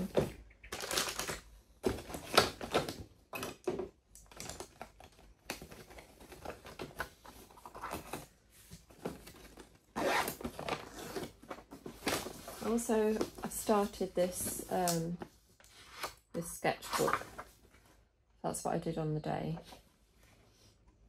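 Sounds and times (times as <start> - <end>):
nylon rustling: 7.8 - 11.3
zip being pulled: 10.0 - 10.4.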